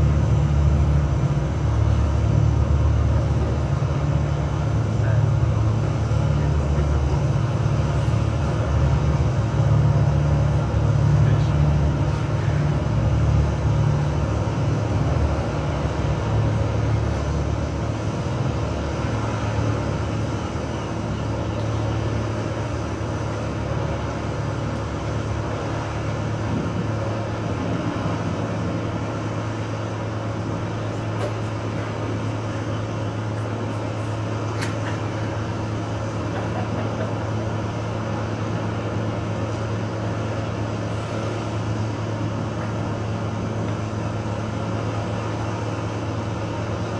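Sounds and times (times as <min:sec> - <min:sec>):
low bass hum: 0:00.0 - 0:30.7.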